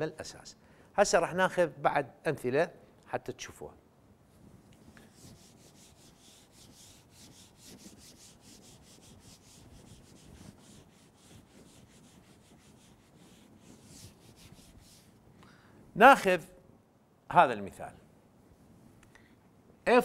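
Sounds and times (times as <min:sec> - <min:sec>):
eraser rubbing whiteboard: 0:04.8 - 0:15.2.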